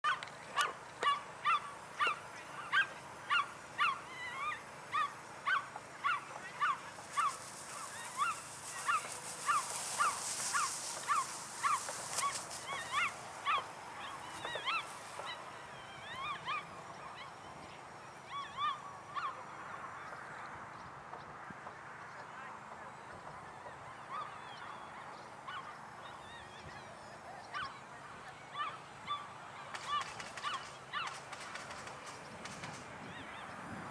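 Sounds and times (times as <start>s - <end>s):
animal yelping calls: 0.1s - 17.4s, 28.5s - 31.2s.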